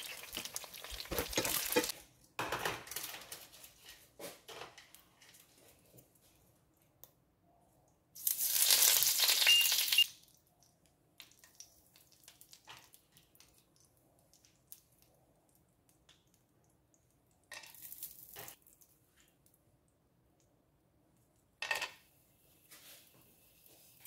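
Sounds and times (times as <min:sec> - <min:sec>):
spices sizzling in hot oil: 0:00.0 - 0:02.0, 0:08.2 - 0:10.2.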